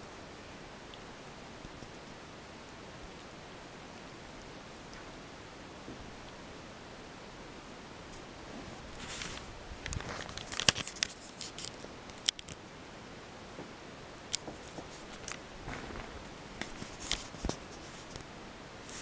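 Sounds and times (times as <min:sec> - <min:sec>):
fabric rustling: 0:08.5 - 0:11.8, 0:14.4 - 0:18.2.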